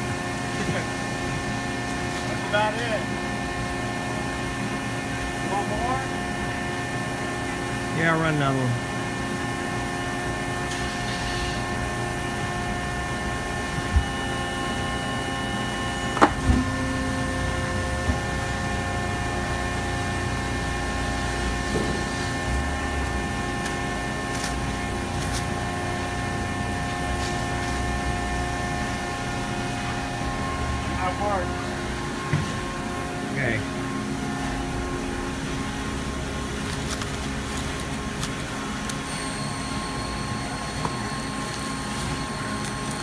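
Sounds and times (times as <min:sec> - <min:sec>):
machine humming: 0:03.0 - 0:43.0.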